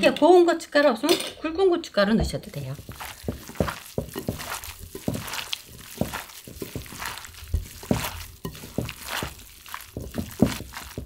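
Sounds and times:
food squishing mixed by hand: 0:02.2 - 0:11.0.

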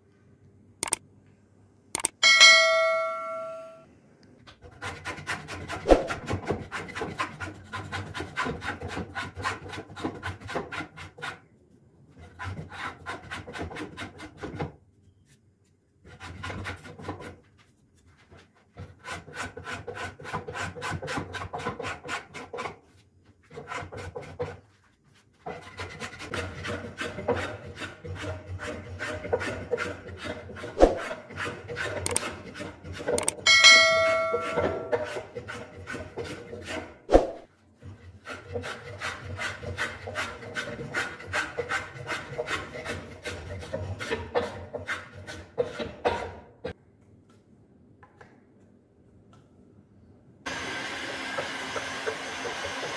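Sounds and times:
sharp click: 0:00.8 - 0:01.0, 0:01.9 - 0:02.2, 0:32.0 - 0:32.2, 0:33.2 - 0:33.4
bell chime: 0:02.2 - 0:03.8, 0:33.5 - 0:34.9
hand tool rasping on wood: 0:04.6 - 0:11.4, 0:12.1 - 0:14.7, 0:16.0 - 0:37.0, 0:37.8 - 0:46.4.

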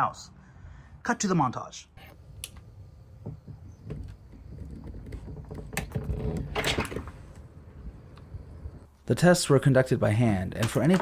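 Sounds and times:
clicks and knocks of doors: 0:03.2 - 0:07.4.

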